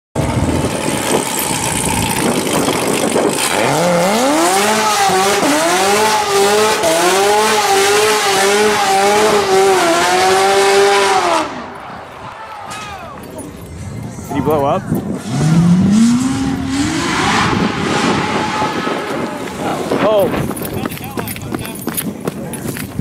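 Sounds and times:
car engine revving: 0.2s - 11.8s, 15.1s - 20.8s
loud rushing noise: 15.0s - 21.2s.

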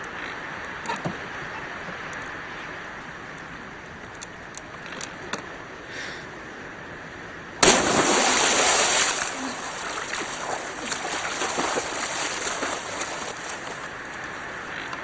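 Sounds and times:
person splashing into water: 7.6s - 13.9s.

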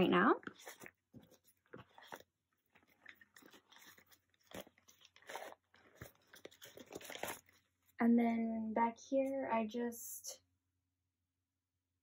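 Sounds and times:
plastic pages crinkling: 0.4s - 8.0s.

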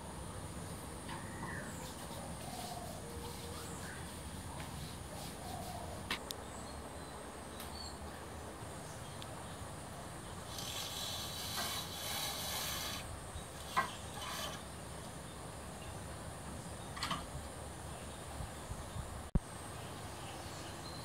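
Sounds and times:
blind cord rasping through pulley: 10.5s - 14.8s.

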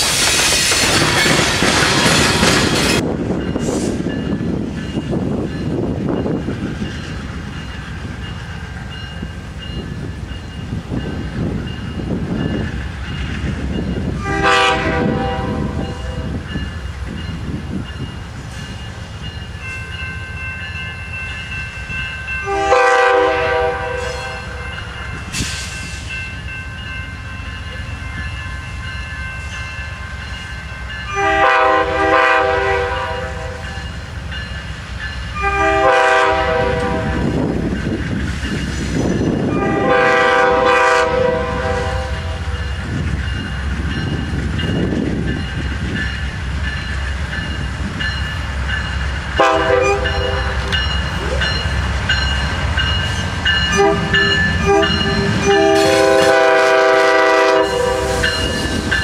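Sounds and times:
rolling train wheels: 0.0s - 59.0s
train air horn blasts: 14.2s - 16.4s, 22.4s - 24.7s, 31.1s - 33.8s, 35.4s - 37.4s, 39.5s - 42.6s, 49.4s - 50.7s, 53.7s - 58.5s.

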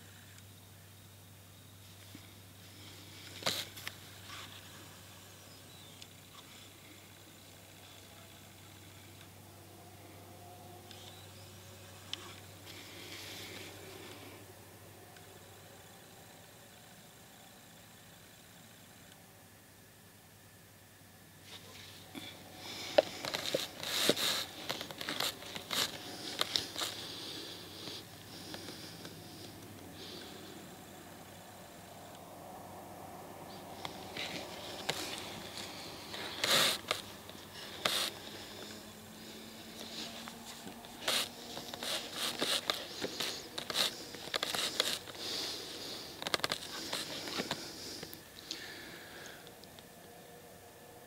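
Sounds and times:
rustling and crinkling: 1.8s - 5.0s, 21.4s - 30.4s, 33.6s - 48.8s
clothing and gear rustling: 22.8s - 27.2s, 39.8s - 47.8s.

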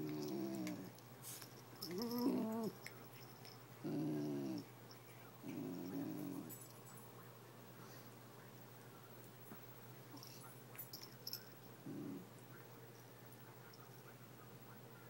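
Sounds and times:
dog moaning growl-like vocalizations: 0.0s - 0.9s, 1.8s - 2.8s, 3.8s - 4.7s, 5.4s - 6.5s, 11.8s - 12.3s.

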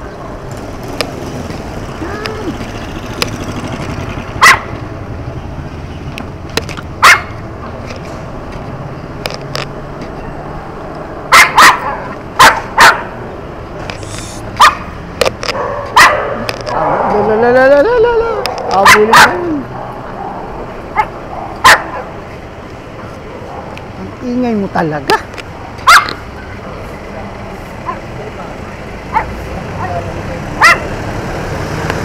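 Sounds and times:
dog barking: 4.4s - 4.7s, 7.0s - 7.4s, 11.3s - 13.2s, 14.6s - 14.9s, 15.5s - 17.2s, 18.5s - 22.2s, 23.4s - 23.8s, 25.8s - 26.2s, 27.8s - 28.1s, 29.1s - 30.0s, 30.6s - 30.9s.

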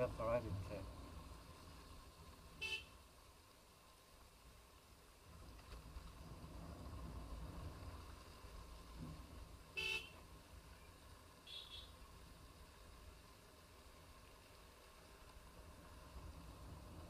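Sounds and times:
low rumble of motorcycle ride: 0.0s - 17.0s
motorcycle horn toot: 2.6s - 2.9s, 9.8s - 10.2s, 11.5s - 11.9s.

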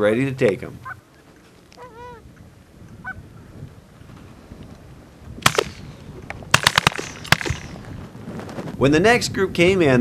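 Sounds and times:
shotgun shots: 5.4s - 7.9s.

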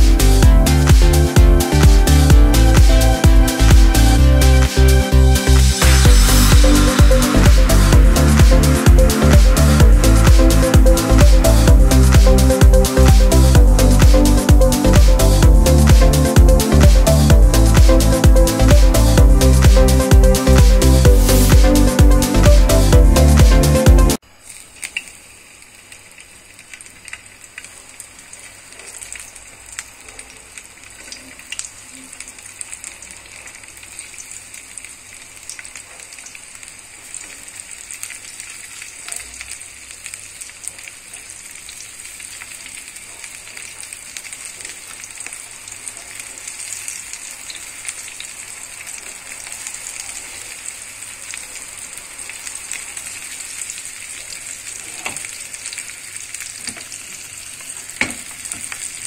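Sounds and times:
fish sizzling in hot oil: 24.2s - 59.0s.

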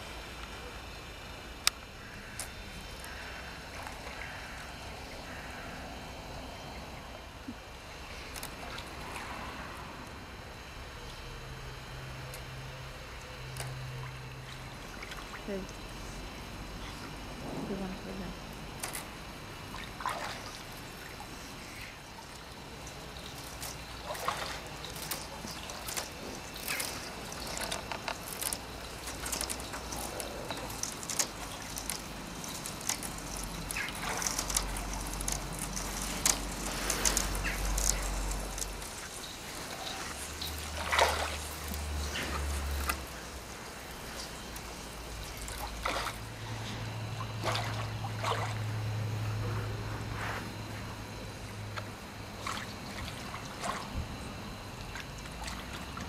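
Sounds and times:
water sloshing and trickling: 0.0s - 56.0s
small splashes and drips: 8.2s - 9.5s, 12.3s - 17.2s, 18.6s - 48.8s, 51.4s - 54.2s, 54.8s - 56.0s.

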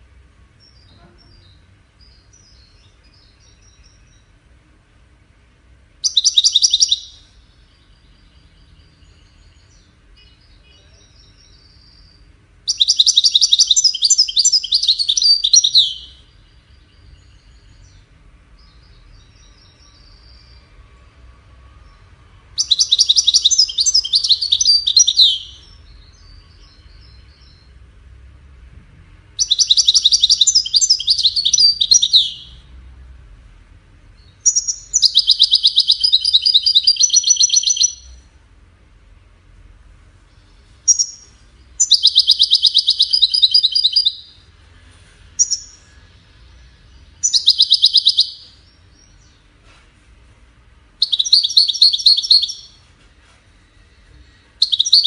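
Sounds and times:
soft bird twittering: 0.6s - 4.4s, 6.0s - 20.8s, 21.7s - 27.8s, 29.4s - 32.7s, 34.2s - 38.3s, 40.2s - 49.6s, 51.0s - 55.0s
bird singing high notes: 22.6s - 27.7s, 29.4s - 32.6s, 34.5s - 38.2s, 40.9s - 44.4s, 45.4s - 49.3s, 51.0s - 52.8s, 54.4s - 55.0s.

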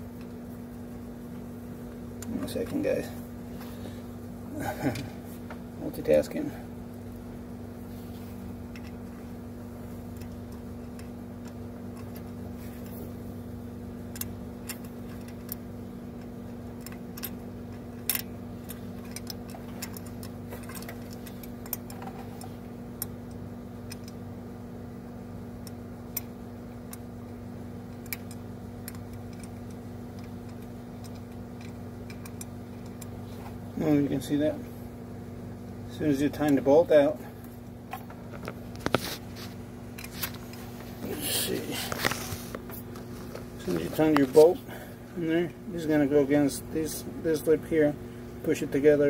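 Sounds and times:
steady low hum: 0.0s - 49.0s
light clicks and taps of tools: 27.9s - 33.2s.

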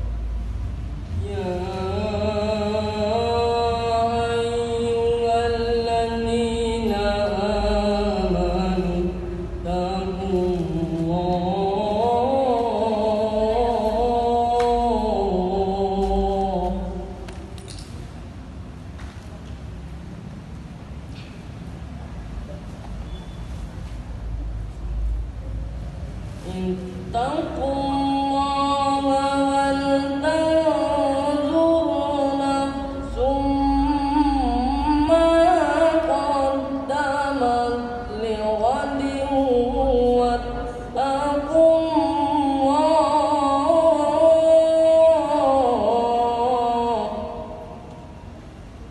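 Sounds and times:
boy chanting melodically into microphone: 1.1s - 17.2s, 26.4s - 48.2s.

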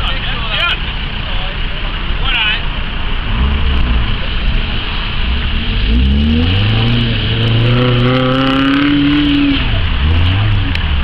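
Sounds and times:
engine revving hard: 5.2s - 11.0s.

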